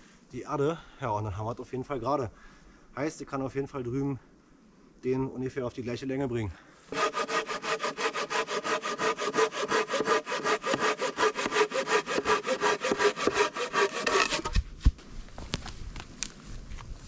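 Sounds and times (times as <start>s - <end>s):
hand saw cutting wood: 6.9s - 14.6s.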